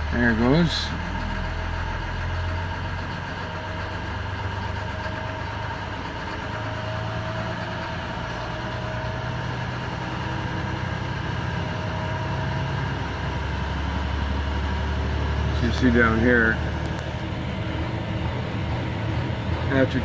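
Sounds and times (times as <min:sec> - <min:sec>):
diesel engine idling: 0:00.0 - 0:20.0.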